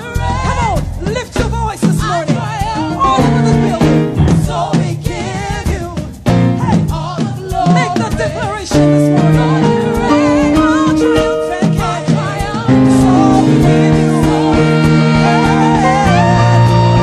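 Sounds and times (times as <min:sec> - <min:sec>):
person singing: 0:00.0 - 0:06.0, 0:06.6 - 0:17.0
bass: 0:00.0 - 0:17.0
drums: 0:00.0 - 0:17.0
keyboard chords: 0:02.8 - 0:04.8, 0:08.8 - 0:17.0.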